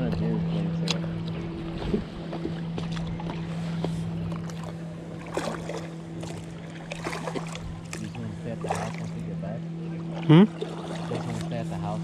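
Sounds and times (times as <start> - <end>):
steady low hum: 0.0 - 12.0
water lapping at hull: 0.0 - 12.0
paddle splashing and dripping: 2.0 - 9.4, 10.0 - 11.7.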